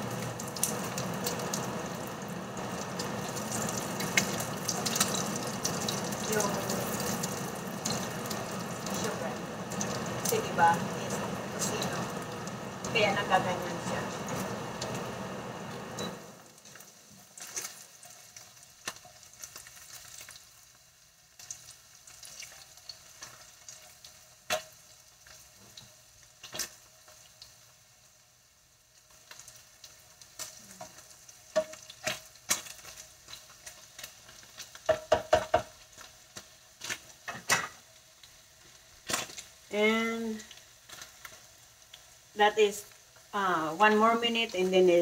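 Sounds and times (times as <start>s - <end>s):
oil popping: 0.0s - 16.6s
meat sizzling in oil: 0.0s - 45.0s
tongs tapping a pan: 30.8s - 32.7s, 34.8s - 35.8s.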